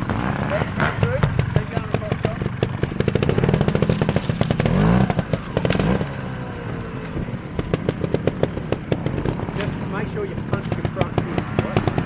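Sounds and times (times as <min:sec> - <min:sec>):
motorcycle engine revving: 0:00.0 - 0:12.0.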